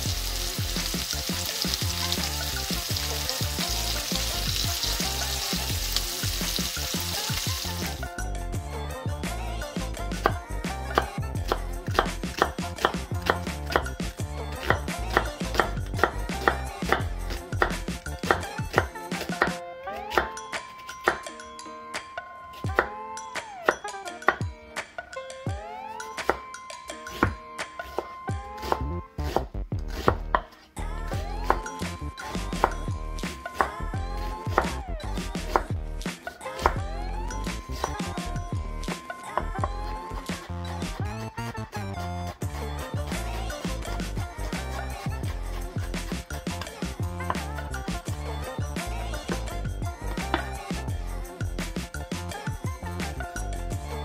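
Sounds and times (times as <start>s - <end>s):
background music: 0.0s - 54.0s
knife cutting onion: 10.2s - 21.2s, 27.1s - 30.6s, 33.5s - 36.8s.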